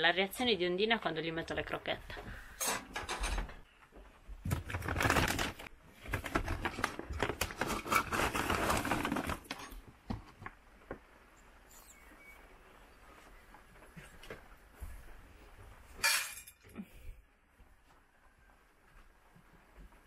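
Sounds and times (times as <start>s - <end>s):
plastic bags rustling: 4.4s - 9.9s.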